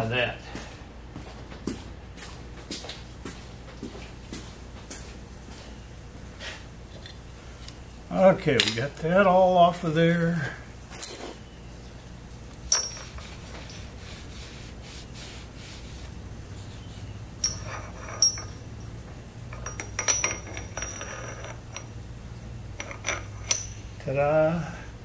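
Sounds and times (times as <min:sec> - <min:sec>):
steady low hum: 0:00.0 - 0:25.0
metal parts clinking on workbench: 0:11.0 - 0:11.4, 0:12.7 - 0:13.9, 0:17.4 - 0:18.9, 0:19.5 - 0:21.9, 0:22.8 - 0:24.0
cloth rubbing on metal: 0:13.0 - 0:18.2.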